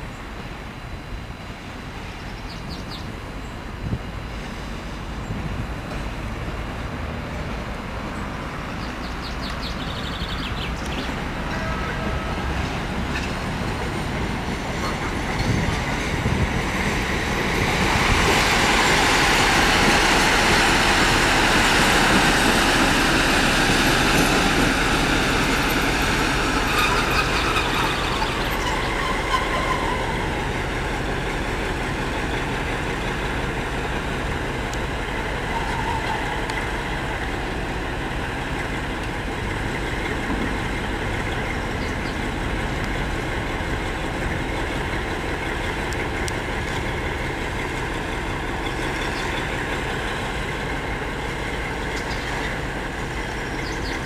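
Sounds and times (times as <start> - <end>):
diesel locomotive engine: 0.0 - 54.0
wheels on rails: 12.6 - 54.0.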